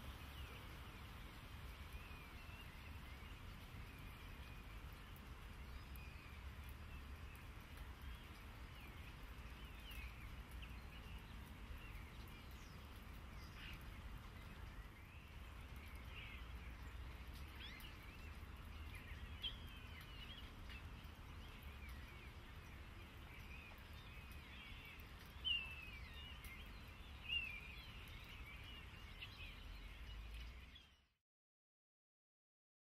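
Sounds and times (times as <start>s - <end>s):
small birds chirping: 0.0s - 31.2s.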